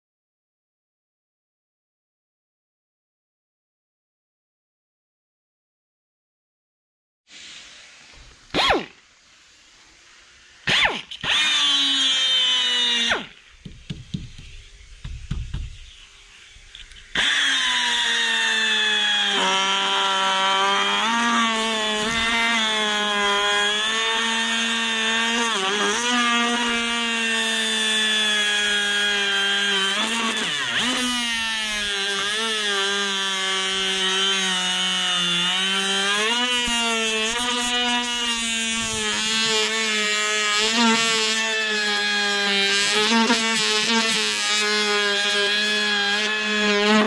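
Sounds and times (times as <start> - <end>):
pneumatic grinder whining: 10.6 - 13.5, 16.7 - 47.0.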